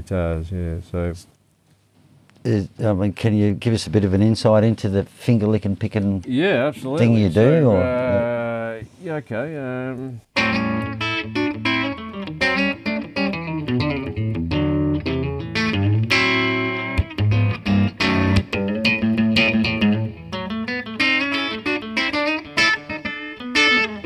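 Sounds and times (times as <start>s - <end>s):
electric guitar playing: 10.3s - 24.0s.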